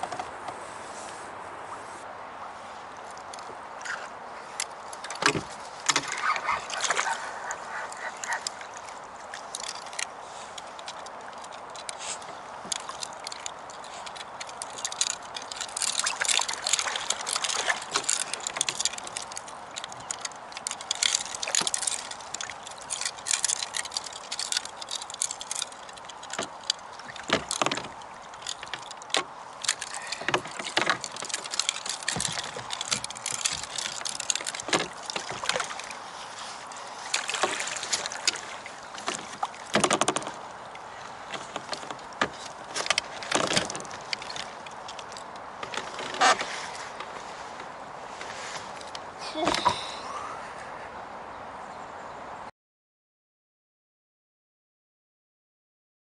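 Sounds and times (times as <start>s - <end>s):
water splashing around kayak hull: 0.0s - 50.2s.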